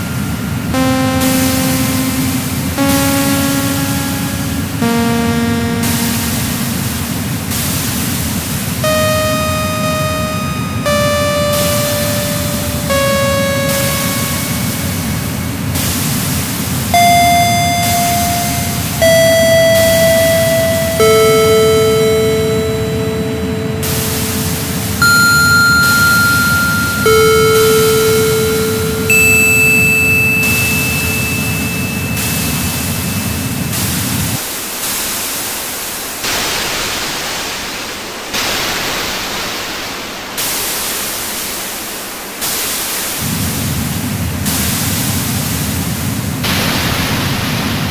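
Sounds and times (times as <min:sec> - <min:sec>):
held electronic tones: 0:00.0 - 0:07.5, 0:08.8 - 0:15.9, 0:16.9 - 0:34.4
electronic hiss noise: 0:00.0 - 0:34.4.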